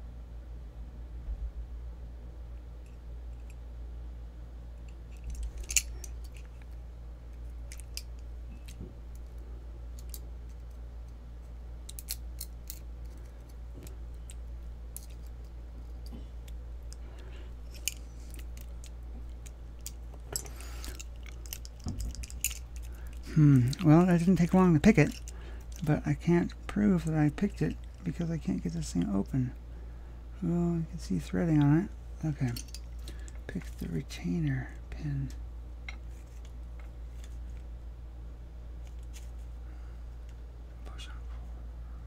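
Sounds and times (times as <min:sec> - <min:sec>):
low electrical hum: 0:00.0 - 0:42.0
lock picks clicking and scratching: 0:04.8 - 0:06.8, 0:07.4 - 0:09.3, 0:09.9 - 0:17.0, 0:17.6 - 0:26.0.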